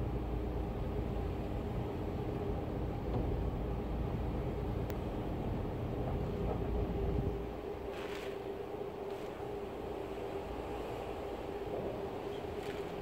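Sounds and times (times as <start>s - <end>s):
hurricane wind: 0.0s - 13.0s
driving rain: 3.4s - 13.0s.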